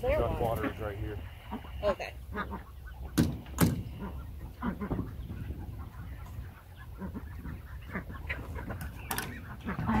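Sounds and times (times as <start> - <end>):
poultry clucking and quacking: 0.0 - 10.0
sharp knocks: 3.2 - 3.9.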